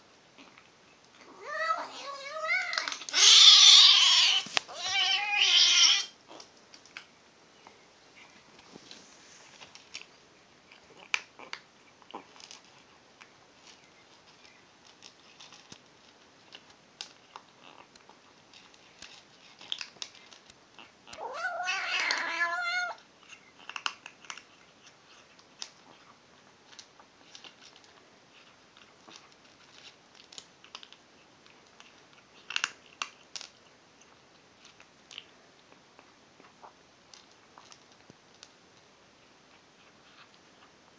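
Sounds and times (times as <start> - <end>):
kitten crunching dry kibble: 8.2 - 40.8
kitten wavering cry: 21.2 - 23.0.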